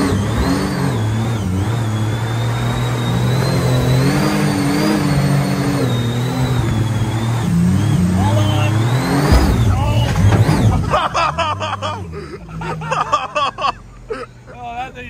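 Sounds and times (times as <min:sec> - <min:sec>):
high engine whine: 0:00.0 - 0:15.0.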